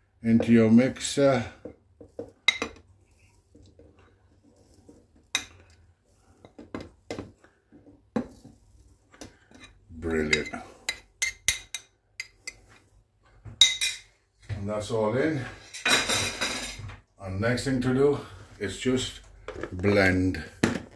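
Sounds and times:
spoon clinking against plate and jug: 0:09.6 - 0:12.6.

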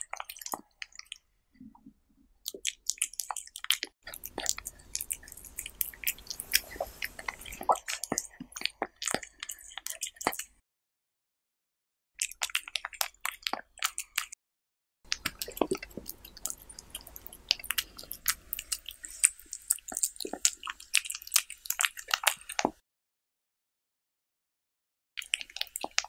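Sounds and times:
cat eating from plate: 0:02.5 - 0:10.5, 0:15.1 - 0:22.8.

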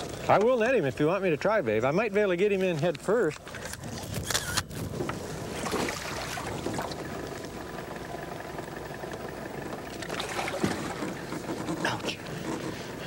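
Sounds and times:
wind: 0:00.0 - 0:13.0
water moving around boat: 0:02.6 - 0:13.0.

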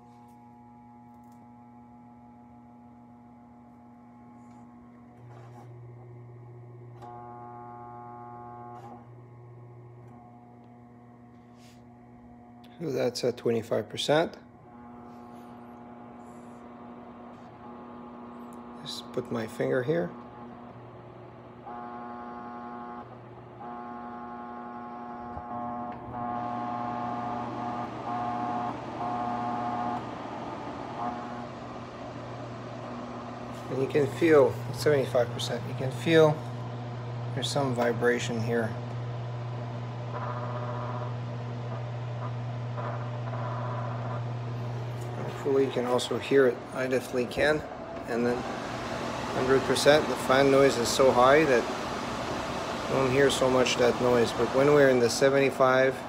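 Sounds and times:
fan humming and buzzing: 0:00.0 - 0:56.0
high-pitched whine: 0:21.6 - 0:56.0.

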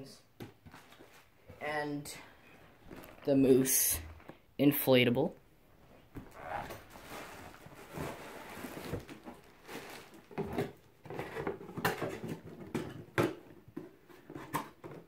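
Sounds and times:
plastic rustling and crinkling: 0:02.6 - 0:04.4, 0:05.8 - 0:15.0.

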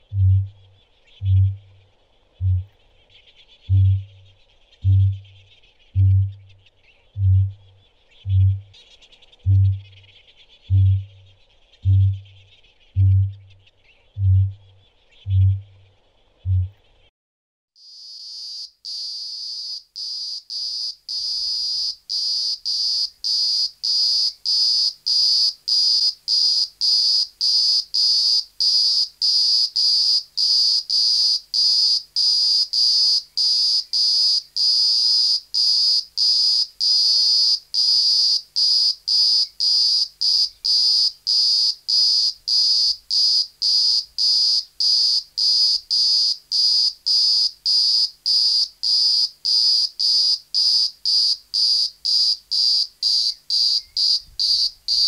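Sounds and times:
cicada buzzing: 0:17.8 - 0:55.0.

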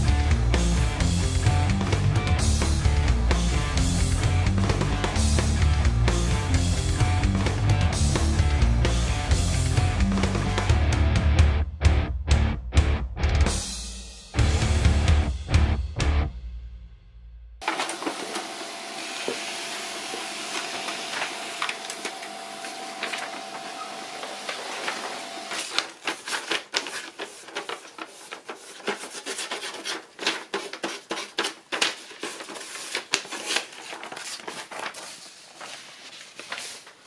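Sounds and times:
laser printer whining: 0:17.6 - 0:25.7
paper sheets crackling: 0:17.6 - 0:37.0.

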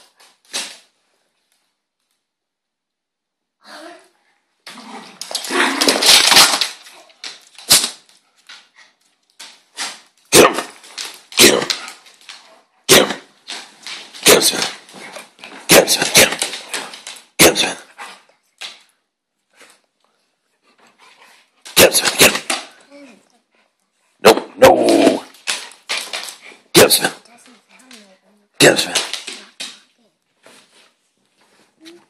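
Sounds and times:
dogs scuffling: 0:04.9 - 0:17.4, 0:25.0 - 0:26.7
dog barking: 0:10.3 - 0:10.8, 0:12.9 - 0:13.3.

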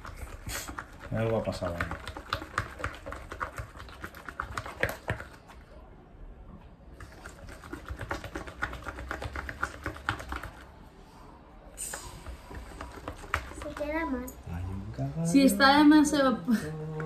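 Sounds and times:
stick stirring sticky slime: 0:00.0 - 0:05.6, 0:06.9 - 0:10.8, 0:11.8 - 0:14.2.

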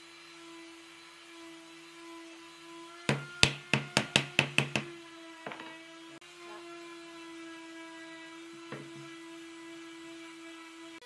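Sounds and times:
sharp wooden knocks: 0:03.1 - 0:04.9.

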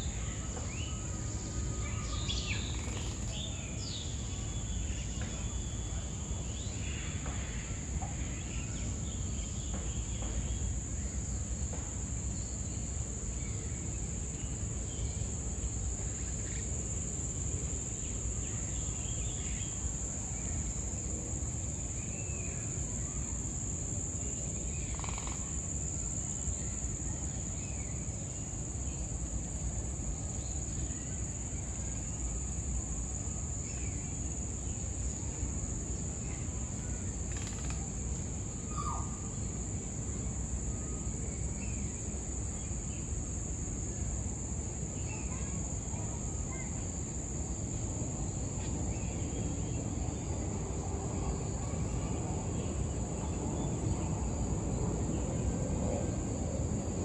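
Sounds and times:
high-pitched insect drone: 0:15.1 - 0:27.0.

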